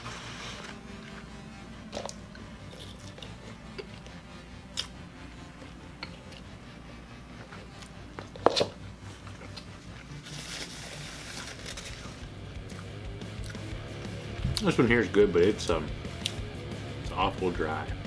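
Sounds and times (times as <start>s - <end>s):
person chewing: 1.9s - 6.6s, 7.5s - 10.2s, 12.6s - 13.6s
paper napkin rustling: 10.0s - 12.3s.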